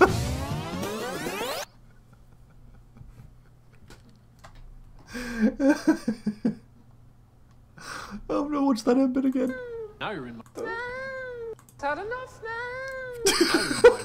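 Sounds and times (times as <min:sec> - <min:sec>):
man laughing: 0:00.0 - 0:00.4, 0:01.7 - 0:03.9, 0:05.1 - 0:06.7, 0:13.2 - 0:14.0
faint clicks: 0:11.5 - 0:11.8.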